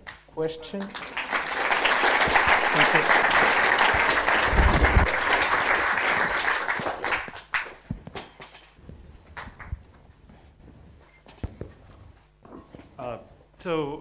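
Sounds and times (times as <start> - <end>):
audience applauding: 0.8 - 7.8.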